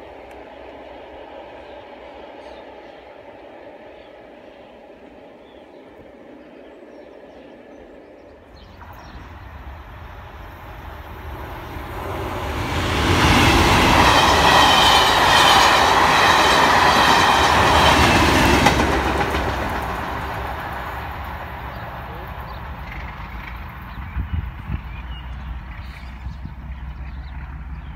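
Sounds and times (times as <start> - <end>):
train wheels on rails: 0.0 - 6.4, 8.5 - 27.8
diesel engines: 8.8 - 27.9.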